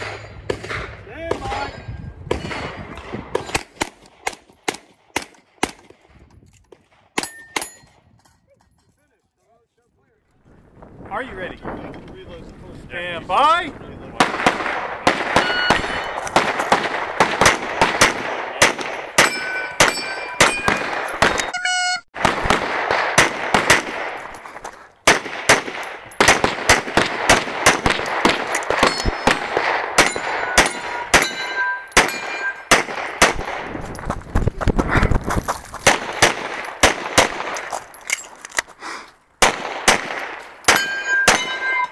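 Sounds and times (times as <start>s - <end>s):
rapid pistol fire: 14.2s - 21.4s, 22.2s - 24.2s, 25.0s - 31.4s, 32.0s - 33.8s, 35.8s - 37.6s, 39.4s - 41.6s
steel targets ringing: 19.1s - 22.0s, 28.8s - 32.7s, 40.7s - 41.9s.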